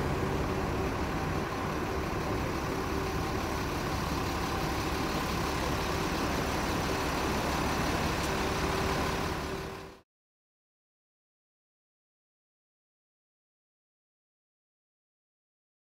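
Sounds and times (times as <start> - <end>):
engine humming: 0.0 - 10.0
road traffic: 0.0 - 10.0.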